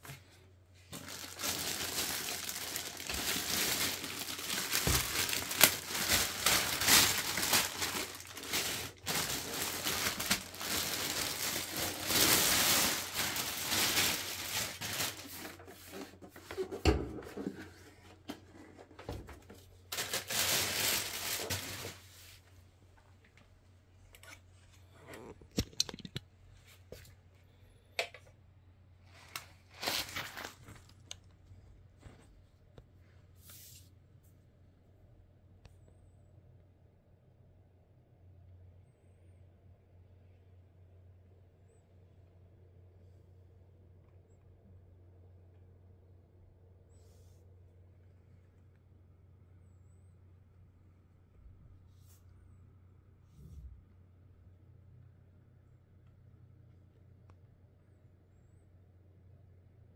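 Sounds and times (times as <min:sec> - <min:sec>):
plastic wrapping crinkling: 0:00.8 - 0:16.2, 0:19.6 - 0:22.1, 0:29.1 - 0:32.2
wrapping tearing: 0:01.0 - 0:15.6, 0:19.9 - 0:22.0, 0:29.3 - 0:31.2.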